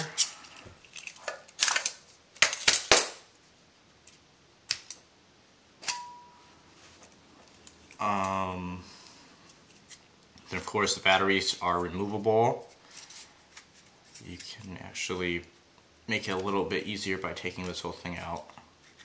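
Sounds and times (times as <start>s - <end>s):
metal parts clicking and clinking: 0.2s - 2.9s.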